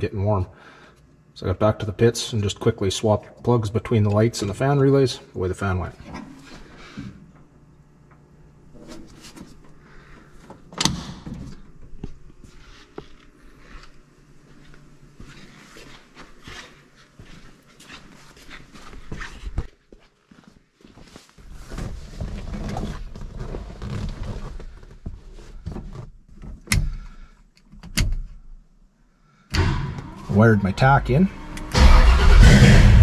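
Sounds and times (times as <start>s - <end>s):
rustling and shuffling in car seat: 12.0s - 26.6s.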